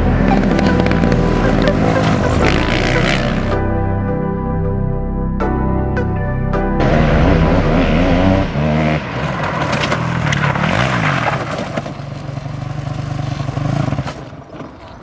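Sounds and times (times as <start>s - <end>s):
go-kart engine revving: 0.0s - 3.6s, 6.8s - 15.0s.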